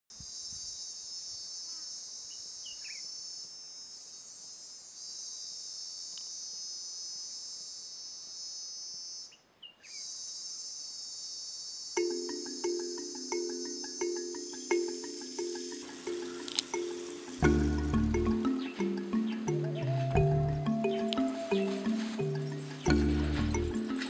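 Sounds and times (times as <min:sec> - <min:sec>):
high-pitched insect chorus: 0:00.2 - 0:24.0
music with short pitched notes: 0:12.0 - 0:24.0.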